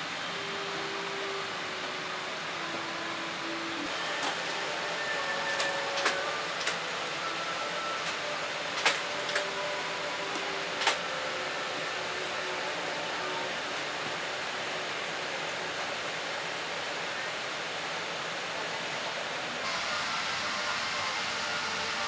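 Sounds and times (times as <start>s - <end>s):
cabin air conditioning hiss: 0.0s - 22.0s.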